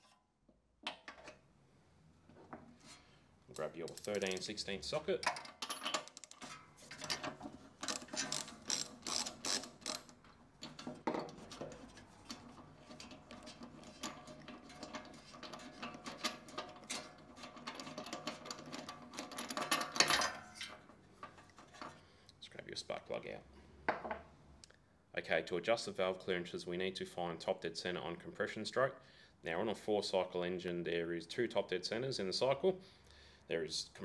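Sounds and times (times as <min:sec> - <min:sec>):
metallic clicks: 0:03.5 - 0:06.4
ratchet wrench clicking: 0:03.6 - 0:04.5, 0:07.9 - 0:10.2
metal clatter: 0:05.2 - 0:22.0.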